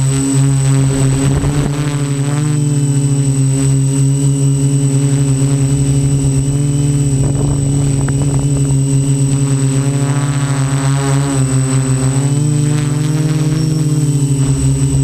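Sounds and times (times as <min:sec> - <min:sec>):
quadcopter propellers buzzing: 0:00.0 - 0:15.0.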